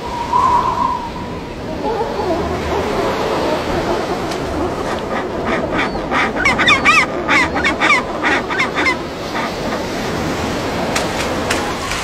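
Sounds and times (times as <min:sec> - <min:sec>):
penguins squawking and honking: 0:01.8 - 0:09.9.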